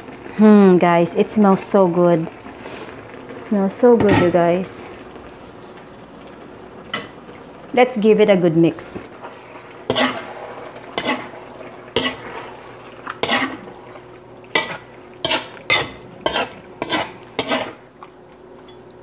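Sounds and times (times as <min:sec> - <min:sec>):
utensil stirring stew in metal pot: 0:09.1 - 0:18.2.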